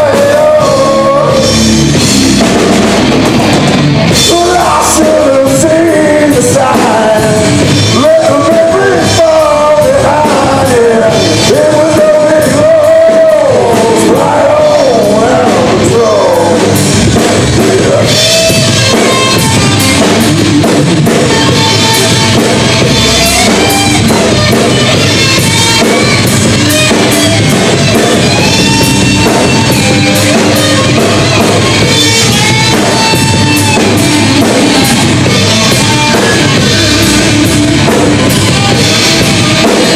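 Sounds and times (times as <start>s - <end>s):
man singing: 0.0s - 2.1s, 4.1s - 39.9s
rock band playing: 0.0s - 39.9s.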